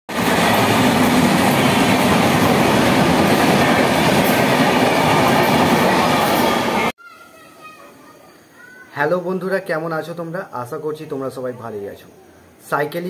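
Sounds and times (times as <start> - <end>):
train wheels rattling on rails: 0.1 - 6.9.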